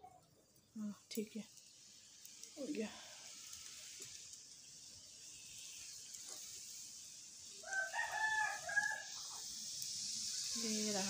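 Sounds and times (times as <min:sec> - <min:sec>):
food sizzling in hot oil: 0:00.0 - 0:11.0
rooster crowing: 0:07.5 - 0:09.4.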